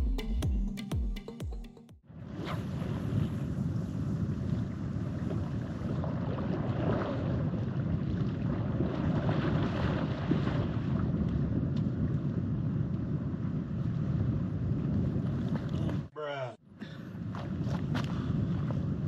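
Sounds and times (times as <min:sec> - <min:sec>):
wind buffeting microphone: 0:02.2 - 0:16.1, 0:16.8 - 0:19.0
small waves washing ashore: 0:02.6 - 0:11.2.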